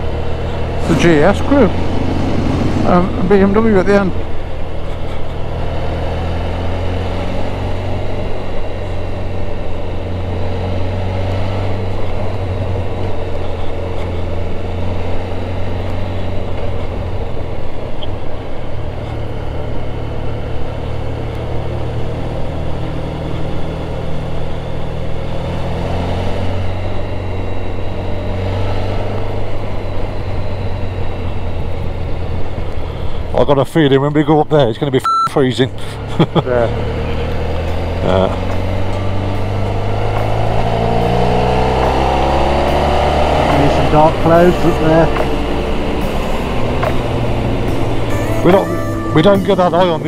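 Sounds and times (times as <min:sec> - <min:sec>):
wind and road noise: 0:00.0 - 0:50.0
motorcycle engine running: 0:36.0 - 0:50.0.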